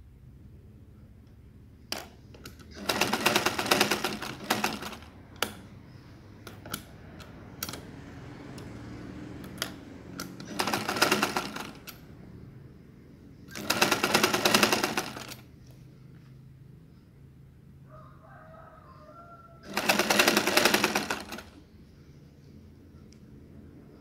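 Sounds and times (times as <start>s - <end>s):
sewing machine stitching: 1.9s - 5.6s, 9.4s - 12.0s, 13.5s - 15.5s, 19.6s - 21.6s.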